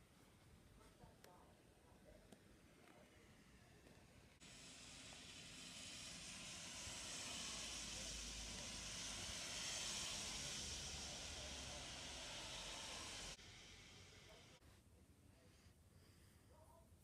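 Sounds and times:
rain hissing on wet street: 0:04.5 - 0:13.4.

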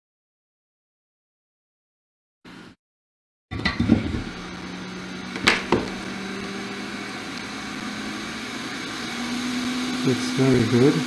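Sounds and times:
hot air blower humming: 0:03.6 - 0:11.0.

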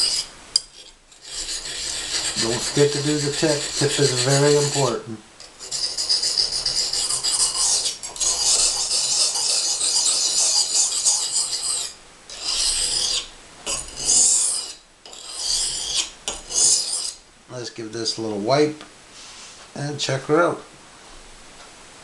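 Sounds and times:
knife scraping sharpening stone: 0:00.0 - 0:17.2.

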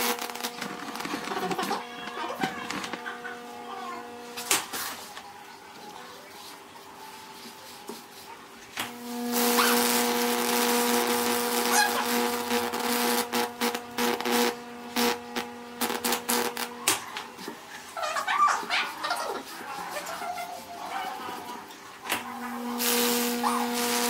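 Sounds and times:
electricity arcing and crackling: 0:00.0 - 0:05.1, 0:08.8 - 0:17.2, 0:22.1 - 0:24.0
electrical hum: 0:00.0 - 0:24.0.

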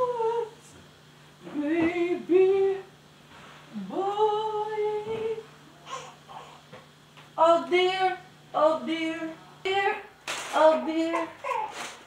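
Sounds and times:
woman singing wordless tune: 0:00.0 - 0:00.7, 0:01.4 - 0:03.0, 0:03.7 - 0:05.5, 0:07.4 - 0:11.4.

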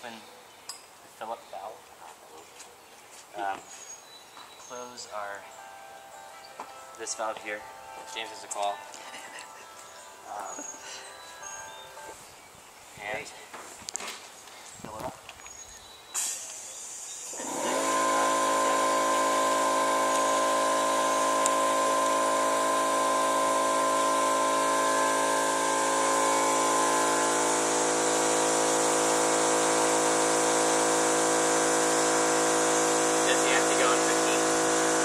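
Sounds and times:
air compressor motor whining: 0:16.2 - 0:35.0.

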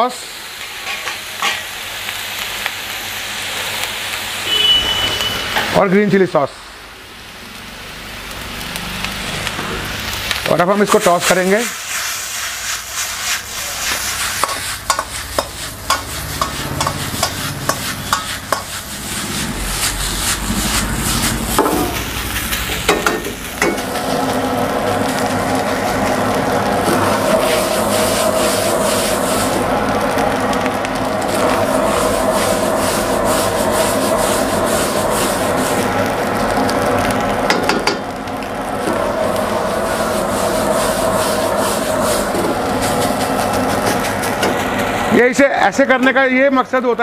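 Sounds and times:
rice frying: 0:00.0 - 0:47.0
steel ladle scraping a wok: 0:11.2 - 0:23.9.

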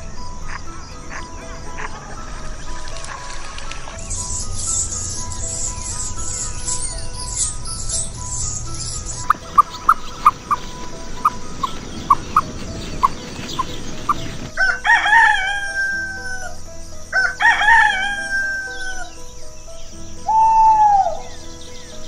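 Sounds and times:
rooster crowing: 0:14.6 - 0:19.2.

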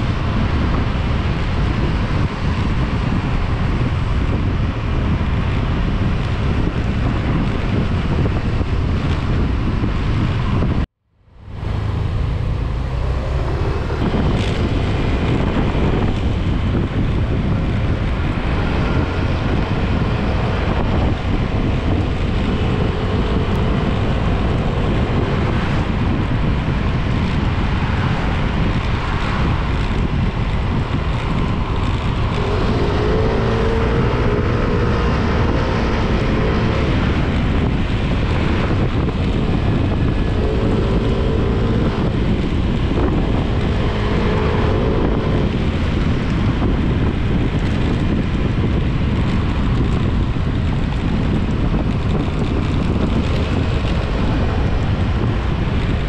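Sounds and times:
motorcycle engine running: 0:00.0 - 0:56.0
wind rushing over microphone: 0:00.0 - 0:56.0.

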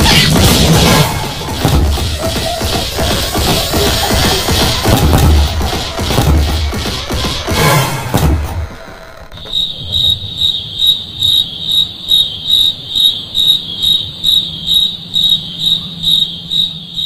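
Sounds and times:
cricket chirping: 0:09.3 - 0:17.0.

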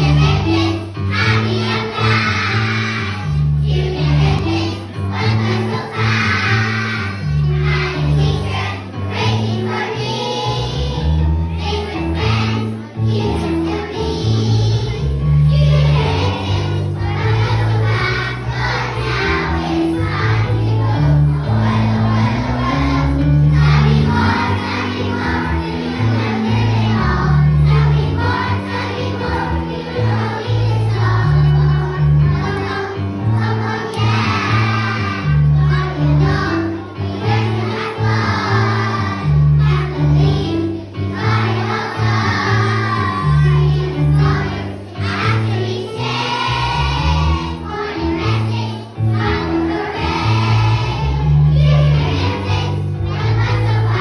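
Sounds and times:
children singing together: 0:00.0 - 0:54.0
backing music with bass line: 0:11.6 - 0:36.6.

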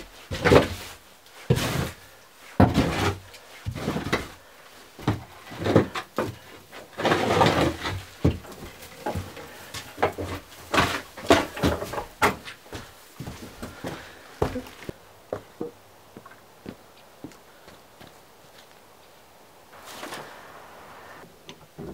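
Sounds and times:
hay being raked across floor: 0:00.1 - 0:04.9, 0:19.7 - 0:21.2.

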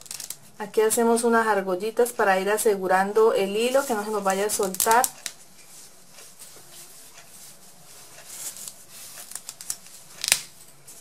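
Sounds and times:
soft rustling of thread: 0:03.1 - 0:11.0.

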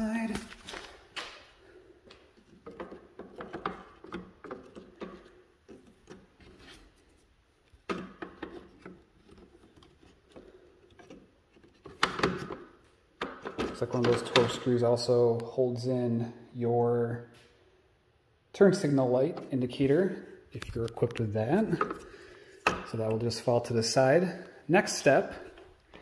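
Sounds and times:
plastic parts clicking and rubbing: 0:02.0 - 0:14.6.

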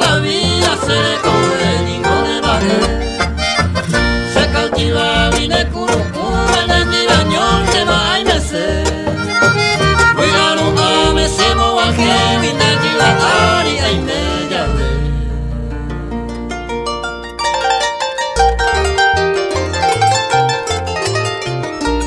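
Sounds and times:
steady bass beat: 0:00.0 - 0:16.8
polka music: 0:00.0 - 0:22.0.

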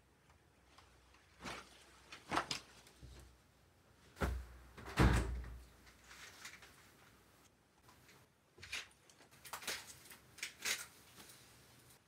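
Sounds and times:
fabric rustling: 0:00.6 - 0:03.4.

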